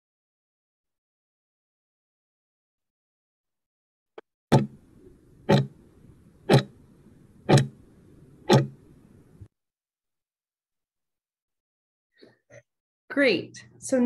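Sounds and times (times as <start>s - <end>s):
clock ticks: 4.5s - 4.8s, 5.4s - 5.8s, 6.5s - 6.8s, 7.4s - 7.8s, 8.4s - 8.8s
faint low hum: 4.6s - 9.5s.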